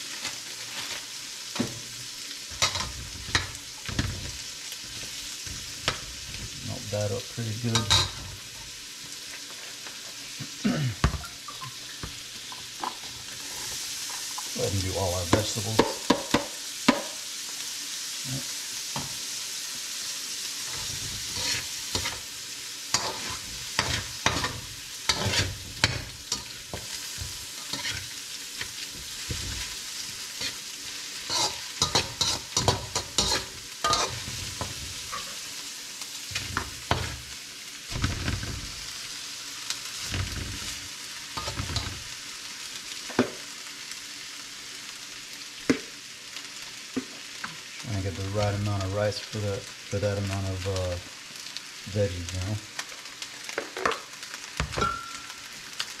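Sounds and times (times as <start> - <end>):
vegetables sizzling in a pan: 0.0 - 56.0
metal spatula scraping a pan: 2.5 - 6.6, 7.7 - 8.4, 20.6 - 22.3, 22.9 - 35.5, 36.3 - 37.2, 41.4 - 42.2.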